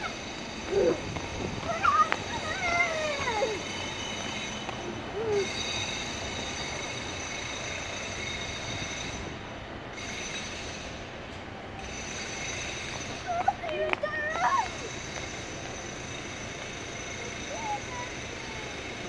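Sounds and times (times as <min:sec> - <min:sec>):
tram running on street track: 0:00.0 - 0:19.0
high-pitched wheel squeal: 0:01.6 - 0:09.4.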